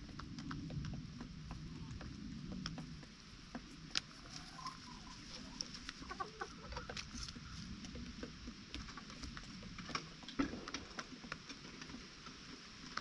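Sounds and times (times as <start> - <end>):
chickens tapping and scratching: 0.0 - 13.0
chickens clucking: 1.5 - 11.4.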